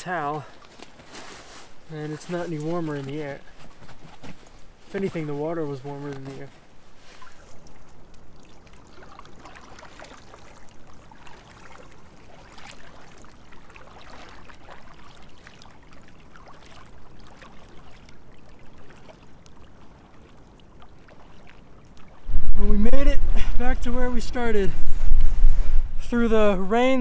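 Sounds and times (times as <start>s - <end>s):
water splashing and trickling: 0.0s - 25.8s
paddle stroke splashes: 6.0s - 22.3s.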